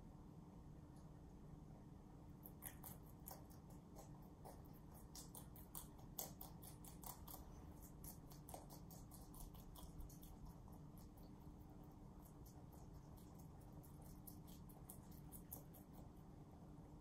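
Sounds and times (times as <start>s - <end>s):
rabbits chewing leafy greens: 2.2s - 17.0s.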